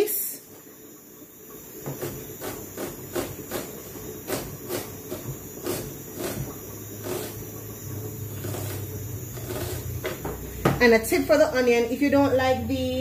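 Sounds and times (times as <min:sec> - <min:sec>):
knife chopping on cutting board: 0:01.9 - 0:07.4.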